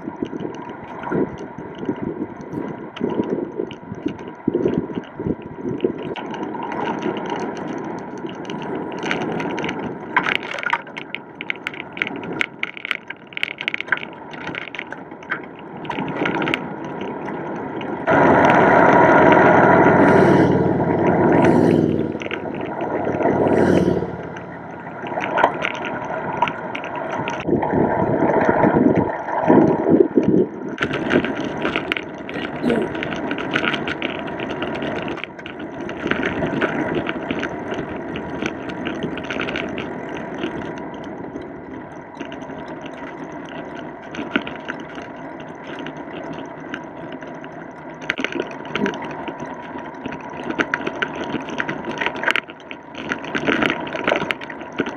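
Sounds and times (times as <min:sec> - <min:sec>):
bicycle clicks and knocks over bumps: 0:00.0 - 0:19.9, 0:24.8 - 0:54.9
bicycle tyre noise on paved road: 0:00.0 - 0:54.9
wind rush while cycling: 0:00.0 - 0:54.9
motorcycle overtaking: 0:18.1 - 0:26.1.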